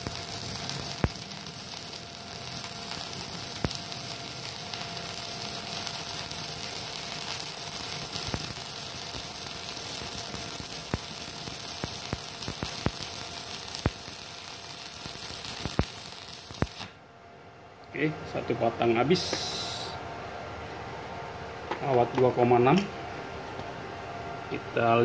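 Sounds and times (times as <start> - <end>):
welding arc crackling: 0.0 - 17.0.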